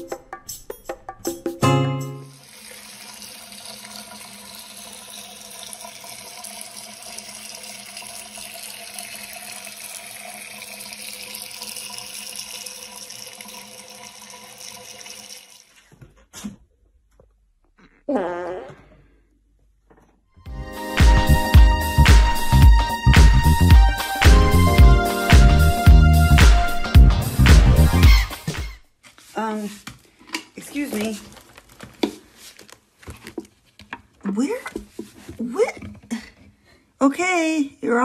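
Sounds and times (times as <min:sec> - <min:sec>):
tap water running into sink: 0:02.3 - 0:15.8.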